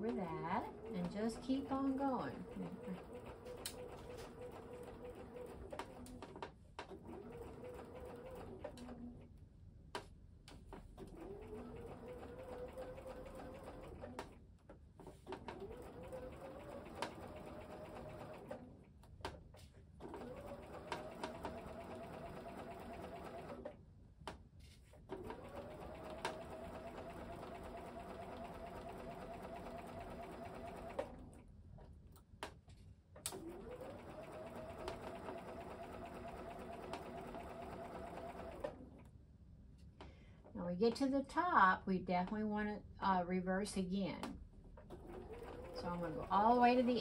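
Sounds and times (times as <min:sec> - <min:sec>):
sewing machine stitching: 0:00.0 - 0:09.2, 0:11.0 - 0:14.4, 0:15.0 - 0:18.8, 0:20.0 - 0:23.8, 0:25.1 - 0:31.4, 0:33.3 - 0:39.0, 0:44.8 - 0:47.0.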